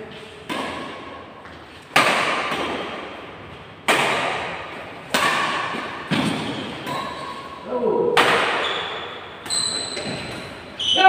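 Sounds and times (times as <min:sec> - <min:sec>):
badminton racket hitting shuttlecock: 0:01.9 - 0:03.2, 0:03.8 - 0:10.4.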